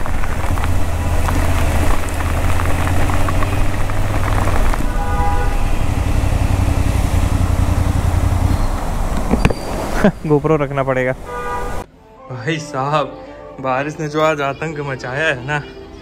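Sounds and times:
heavy rain spattering: 0.0s - 11.2s
motorcycle engine humming: 0.0s - 11.8s
short horn toot: 4.8s - 6.7s.

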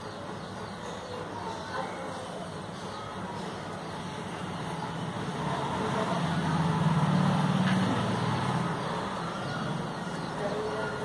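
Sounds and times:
vehicle engine passing by: 4.3s - 11.0s.

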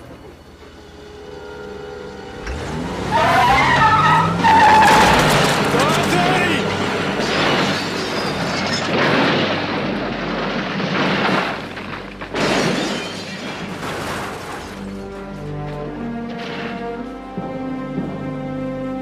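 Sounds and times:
film score music: 0.0s - 19.0s
car crashing down rocky slope: 2.4s - 15.4s.

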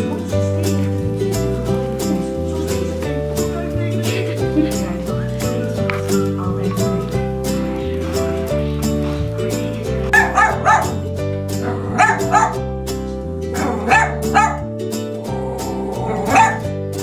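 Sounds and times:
background music: 0.0s - 17.0s
small dog yapping: 13.6s - 14.6s, 16.3s - 16.6s.

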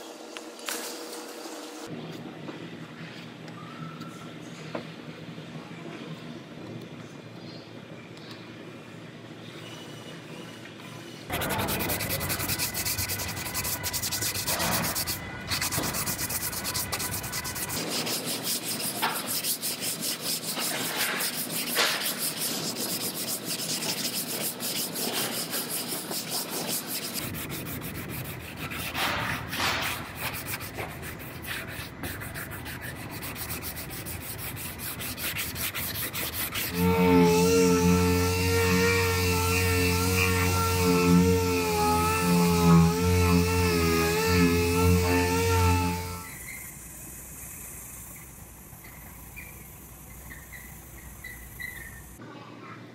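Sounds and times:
sandpaper scraping back and forth: 11.3s - 46.5s.

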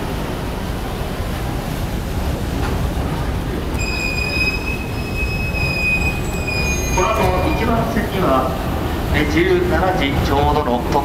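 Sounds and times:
train rumbling on rails: 0.0s - 11.0s
high-pitched wheel squeal: 3.8s - 7.7s.

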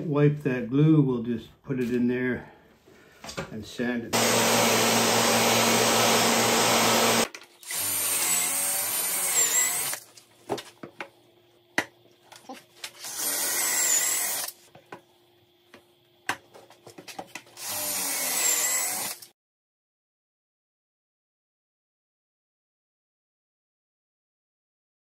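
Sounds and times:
orbital sander running: 4.2s - 9.9s
cordless drill whining: 4.2s - 10.0s, 13.0s - 14.6s, 17.6s - 19.3s.

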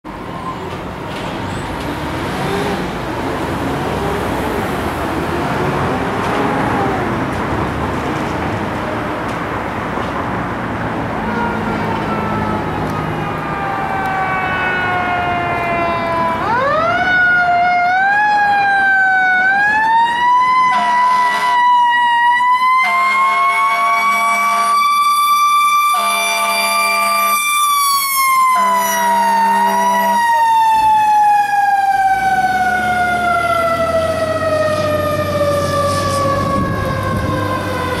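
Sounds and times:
fire engine siren wailing: 0.0s - 0.8s, 2.3s - 8.0s, 10.9s - 38.0s
fire engine horn blasts: 20.7s - 21.9s, 22.8s - 30.6s.

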